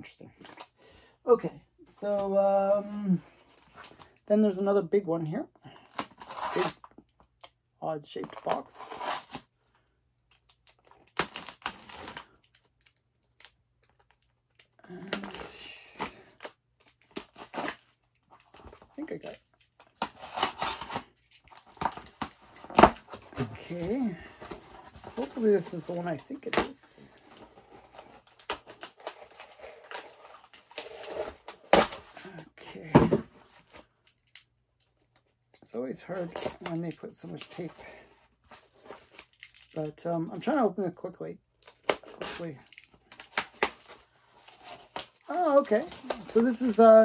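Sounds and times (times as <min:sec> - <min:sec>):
cardboard and tape tearing: 0:05.7 - 0:07.0, 0:08.3 - 0:09.5, 0:10.3 - 0:12.6, 0:13.4 - 0:34.4, 0:36.2 - 0:39.9, 0:41.6 - 0:47.0
cardboard scratching and tearing: 0:05.9 - 0:06.9, 0:08.6 - 0:09.4, 0:19.9 - 0:32.2.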